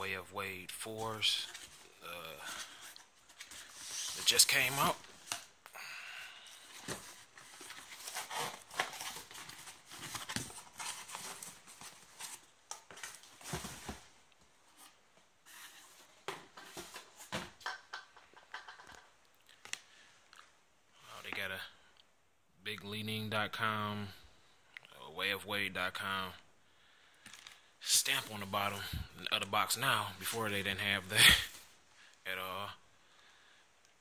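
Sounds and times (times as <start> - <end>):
cardboard box and paper rustling: 6.6 - 14.1.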